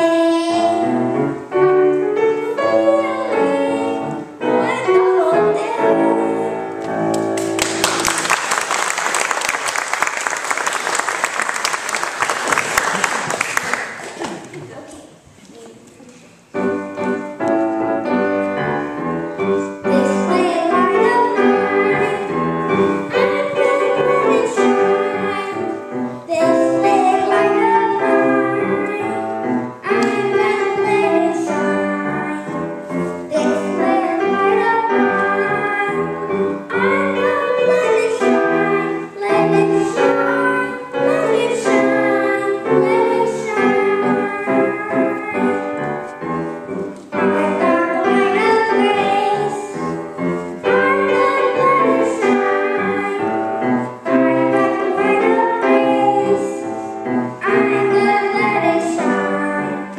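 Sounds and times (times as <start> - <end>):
boy singing: 0.0 - 1.1, 2.4 - 6.8, 19.6 - 32.6, 33.3 - 45.9, 47.2 - 49.9, 50.6 - 53.4, 54.1 - 59.9
piano accompaniment: 0.0 - 14.0, 16.3 - 59.9.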